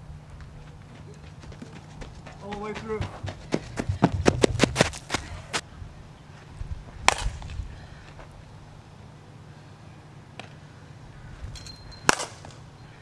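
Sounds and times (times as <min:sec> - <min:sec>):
bat cracking ball: 0:07.0 - 0:07.6, 0:10.4 - 0:10.6, 0:12.0 - 0:12.7.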